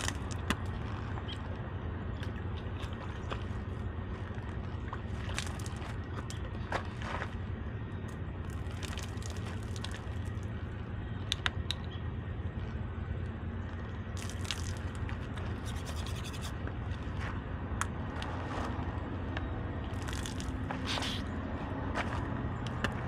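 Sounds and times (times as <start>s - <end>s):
low engine hum: 0.0s - 23.0s
toothbrush scrubbing teeth: 15.6s - 16.5s.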